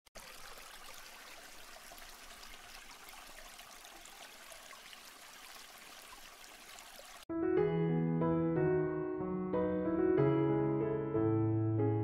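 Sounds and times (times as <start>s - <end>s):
aquarium water trickling: 0.1s - 7.3s.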